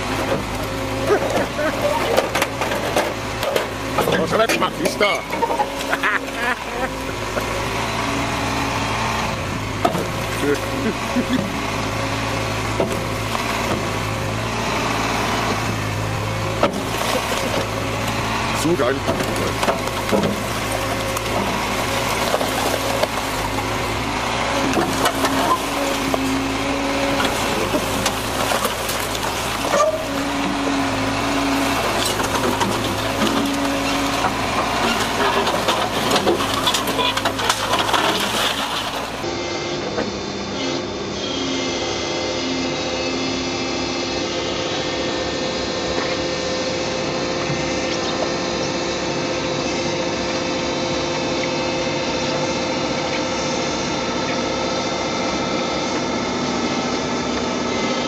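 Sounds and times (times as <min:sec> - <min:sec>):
excavator diesel engine: 0:00.0 - 0:58.0
metal drum being crushed: 0:31.9 - 0:39.2.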